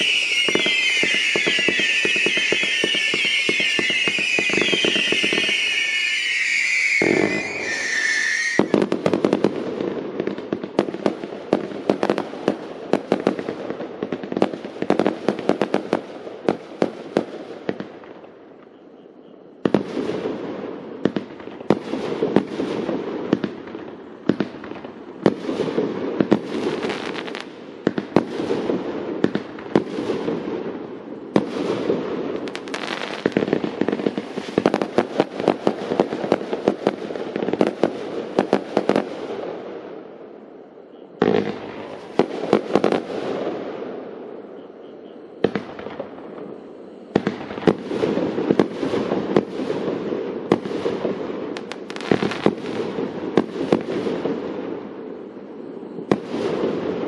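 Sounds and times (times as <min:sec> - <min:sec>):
firework battery firing shots: 0:00.0 - 0:09.7
high steady tone: 0:05.1 - 0:08.7.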